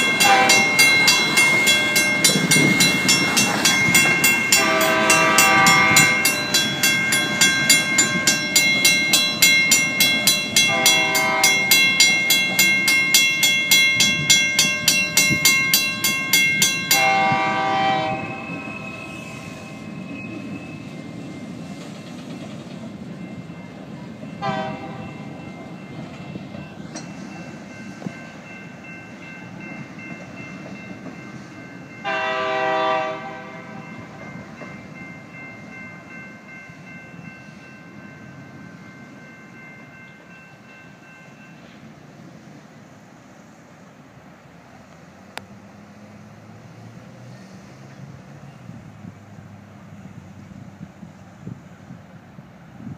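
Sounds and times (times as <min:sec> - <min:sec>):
train horn blasts: 0:00.0 - 0:01.0, 0:04.5 - 0:06.4, 0:10.6 - 0:12.0, 0:16.9 - 0:19.9, 0:24.4 - 0:25.4, 0:32.0 - 0:34.3
crossing bell ringing: 0:00.0 - 0:42.4
freight train rumbling: 0:00.0 - 0:52.9.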